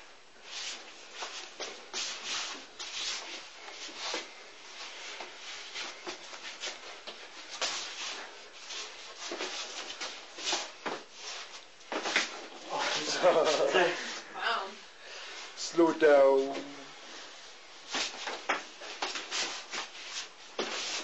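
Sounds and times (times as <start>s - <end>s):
forearms brushing and slapping: 0.4s - 13.6s, 17.8s - 21.0s
shuffling feet: 0.4s - 14.3s, 16.3s - 21.0s.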